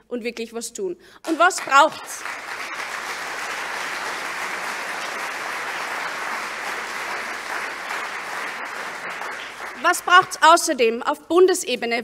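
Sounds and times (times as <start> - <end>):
audience applauding: 1.3 - 10.7.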